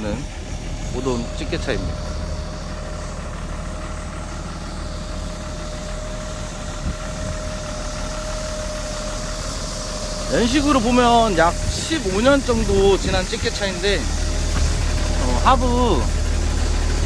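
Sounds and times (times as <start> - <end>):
diesel engine idling: 0.0 - 17.0
steady engine whine: 0.0 - 17.0.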